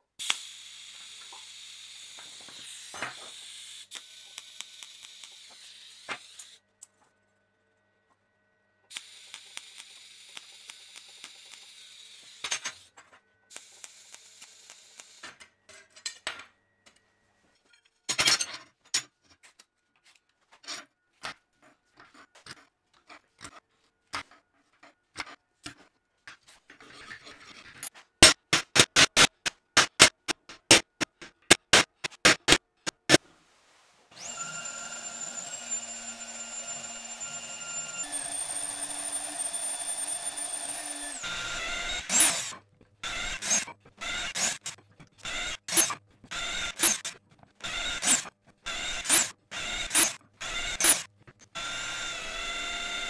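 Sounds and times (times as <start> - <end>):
drill press boring steel: 34.2 - 53.0.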